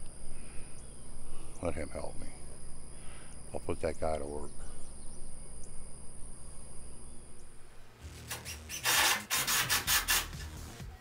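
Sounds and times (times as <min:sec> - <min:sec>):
high insect drone: 0:00.0 - 0:10.4
rasping strokes on wood: 0:08.3 - 0:10.6.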